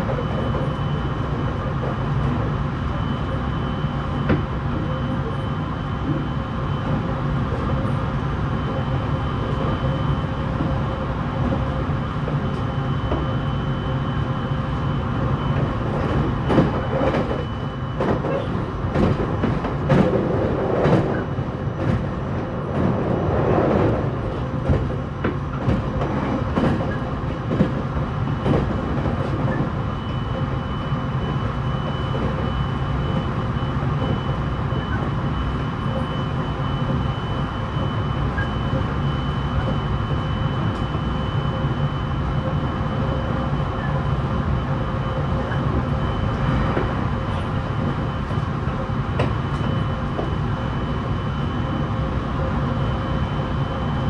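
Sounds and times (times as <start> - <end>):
train running rumble: 0.0 - 54.0
wheels clattering on rails: 15.5 - 29.8.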